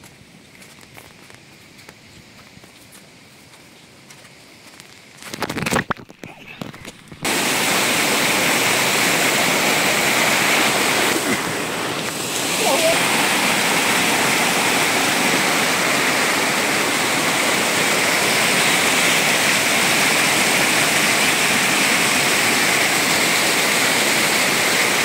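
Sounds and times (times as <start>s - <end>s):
floodwater rushing: 7.2s - 25.0s.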